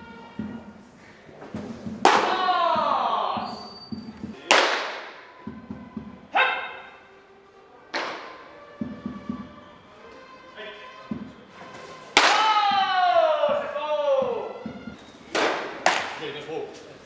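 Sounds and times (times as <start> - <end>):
person shouting calls: 2.2 - 3.6, 6.3 - 7.0, 12.3 - 14.6
baseball popping into glove: 14.6 - 16.2.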